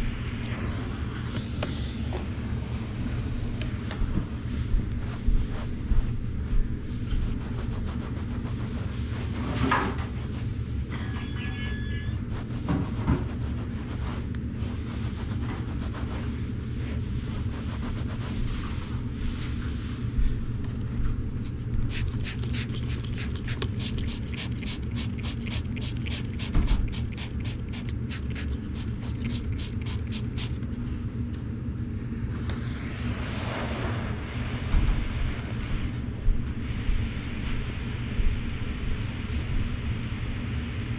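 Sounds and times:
low mechanical rumble: 0.0 - 40.9
fast regular ticks: 21.9 - 30.6.

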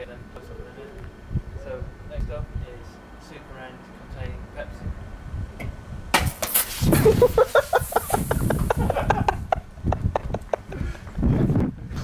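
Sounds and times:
can hitting ground: 6.1 - 8.2
soda spraying hiss: 6.4 - 9.1
people laughing: 6.9 - 11.0.

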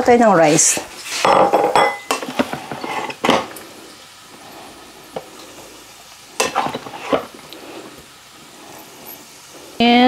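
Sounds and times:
dishes and spoon clinking: 1.2 - 3.5, 6.4 - 7.3
dishes clattering: 1.2 - 3.6, 6.4 - 7.3.

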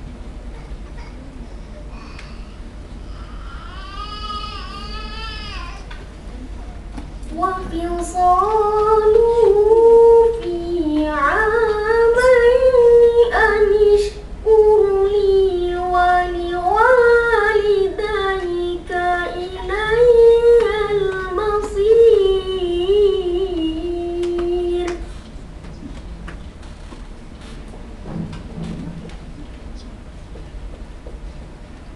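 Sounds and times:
boy reciting melodically: 7.3 - 25.1.

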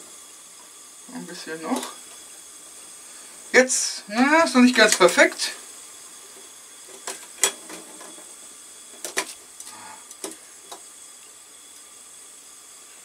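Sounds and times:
gas burner hissing: 0.0 - 13.0.

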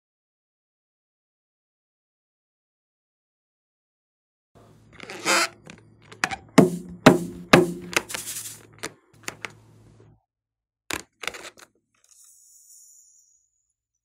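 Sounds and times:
balloon taps and rubbery squeaks: 5.0 - 8.2.

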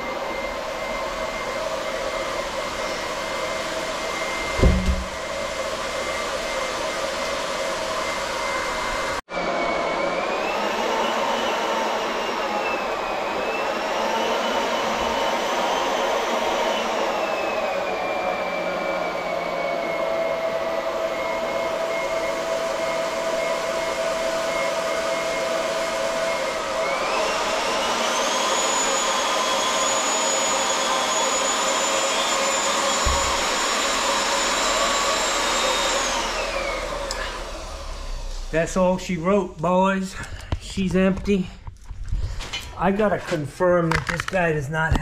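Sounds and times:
water and air rushing from tank: 4.5 - 5.4.

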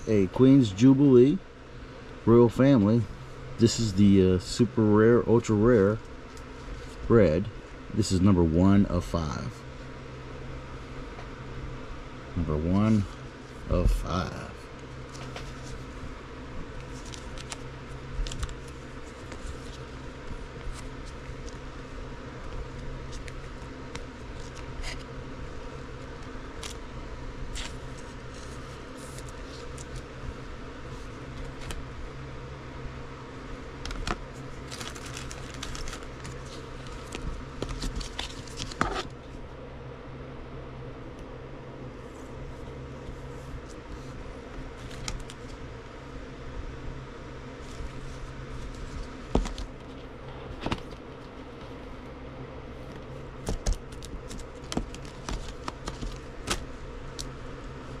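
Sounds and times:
steady low hum: 0.0 - 58.0
trading cards being handled: 12.7 - 21.8, 22.4 - 25.1, 25.9 - 26.8, 27.5 - 31.9, 33.8 - 39.2, 42.0 - 45.6, 47.6 - 51.7, 52.8 - 57.9.

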